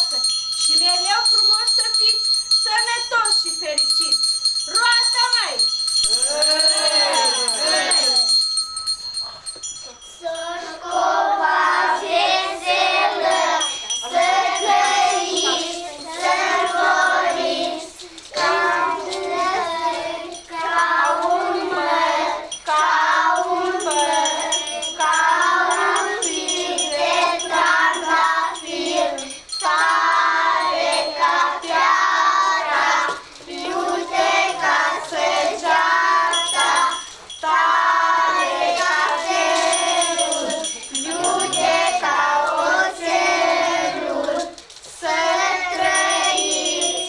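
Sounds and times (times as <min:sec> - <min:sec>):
children singing in chorus: 0:10.2 - 0:47.0.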